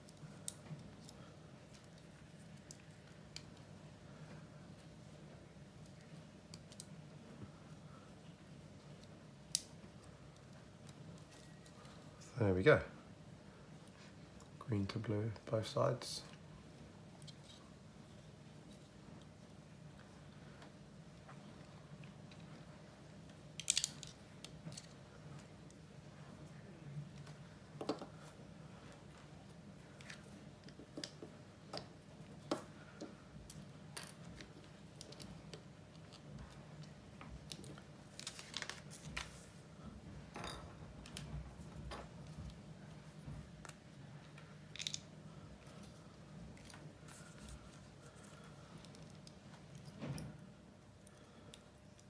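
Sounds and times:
faint low hum: 0:00.0 - 0:52.0
paper page turning: 0:38.1 - 0:39.6.

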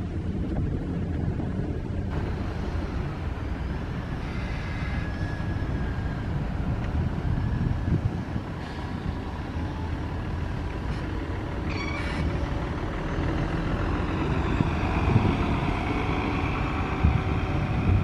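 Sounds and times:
bus engine running: 0:00.0 - 0:18.0
air brakes hissing: 0:04.2 - 0:06.0, 0:08.5 - 0:09.4.

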